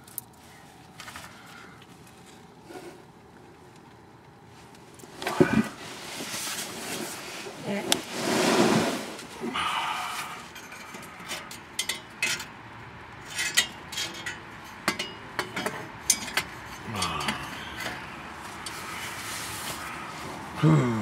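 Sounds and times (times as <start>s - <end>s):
metallic clicks and clinks of tools: 10.5s - 12.5s.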